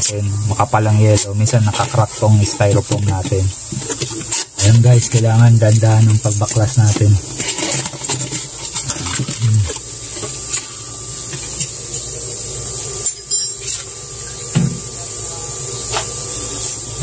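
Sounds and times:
steady hiss: 0:00.0 - 0:17.0
styrofoam panel scraping: 0:00.6 - 0:11.6.

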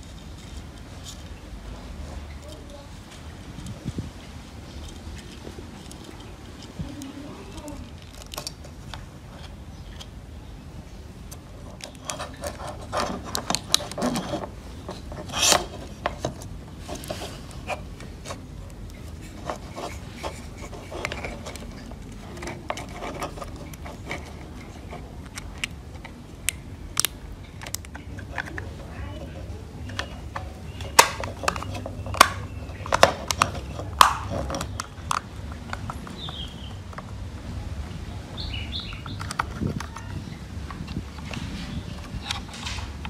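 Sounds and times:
plastic parts clicking and tapping: 0:11.3 - 0:28.8, 0:29.8 - 0:37.2, 0:38.8 - 0:41.4
plastic scrape: 0:11.6 - 0:26.2, 0:27.6 - 0:36.5.

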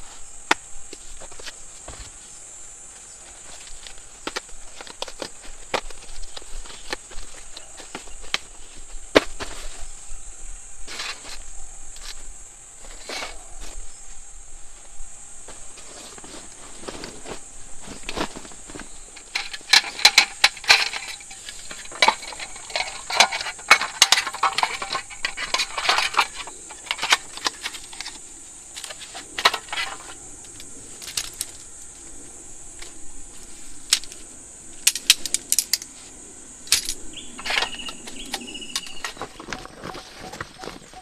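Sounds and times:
metallic clinks and rattles: 0:19.2 - 0:28.1.

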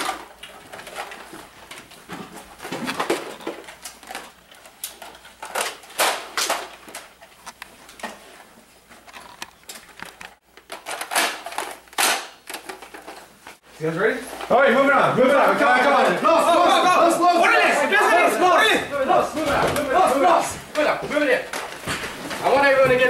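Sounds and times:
knocks and rustling: 0:00.0 - 0:13.6, 0:19.1 - 0:23.0
plastic toy clatter and clicks: 0:02.7 - 0:07.6, 0:09.1 - 0:13.2.

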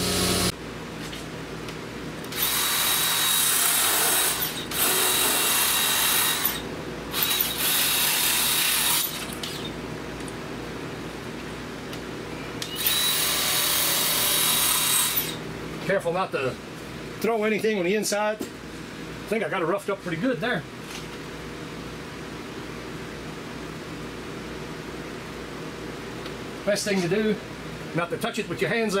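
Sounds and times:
drill spinning wire brush: 0:00.0 - 0:00.5, 0:02.3 - 0:09.7, 0:12.6 - 0:15.4.

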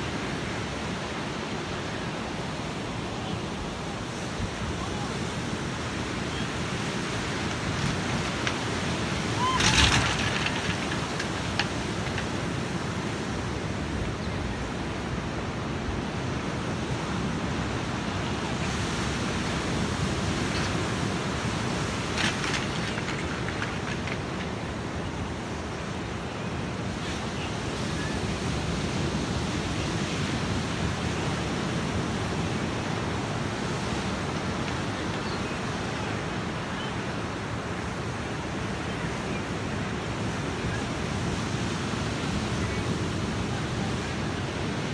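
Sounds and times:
ocean surf breaking: 0:00.0 - 0:14.0.

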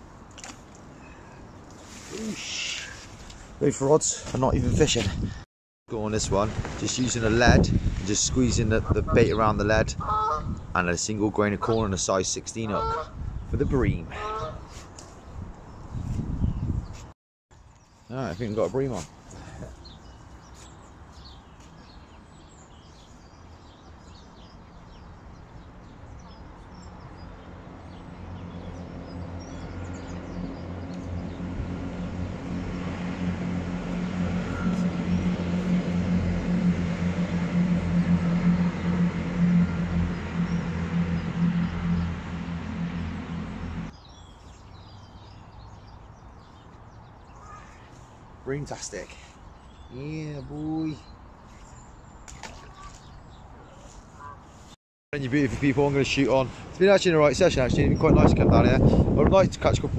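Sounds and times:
motor humming: 0:28.1 - 0:43.9.

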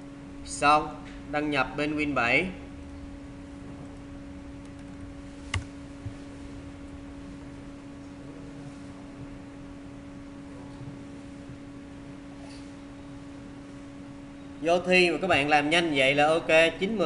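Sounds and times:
electrical hum: 0:00.0 - 0:17.0.

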